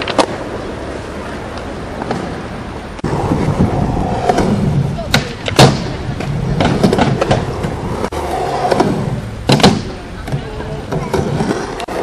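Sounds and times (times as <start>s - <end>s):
skateboard hitting concrete: 0.0s - 0.6s, 4.2s - 12.0s
people talking: 4.8s - 5.6s, 9.9s - 12.0s.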